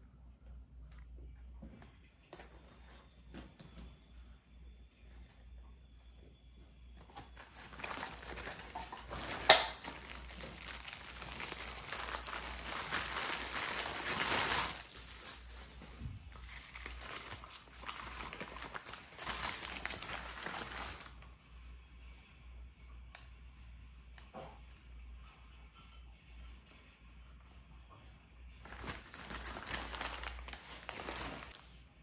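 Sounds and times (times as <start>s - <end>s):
paper and plastic bag crinkling: 7.0s - 21.2s, 28.6s - 31.8s.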